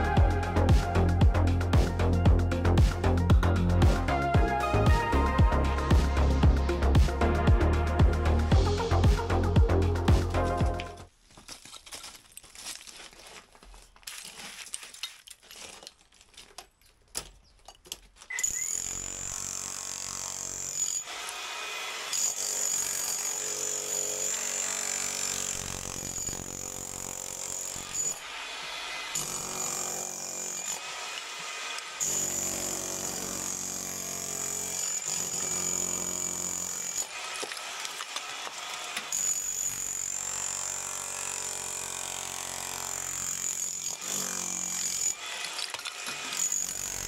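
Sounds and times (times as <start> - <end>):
demolition hammer breaking brickwork: 29.2 - 47.0.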